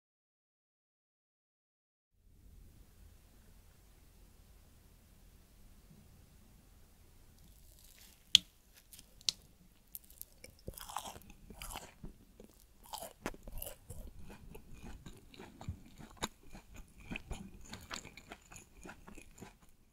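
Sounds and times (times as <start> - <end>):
chewing cake with soft crunching: 7.4 - 19.9.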